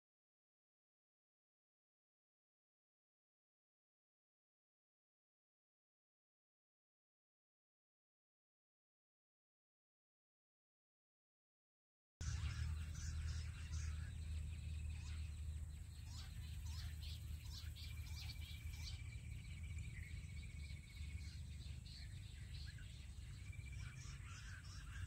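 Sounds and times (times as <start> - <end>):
low steady rumble: 12.2 - 25.0
steady bird trill: 12.2 - 25.0
wild birds chirping: 12.2 - 25.0.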